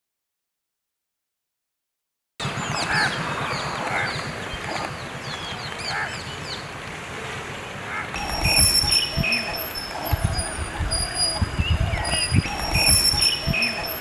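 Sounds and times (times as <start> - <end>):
chorus of birds chirping: 2.4 - 14.0
steady high-pitched tone: 8.2 - 14.0.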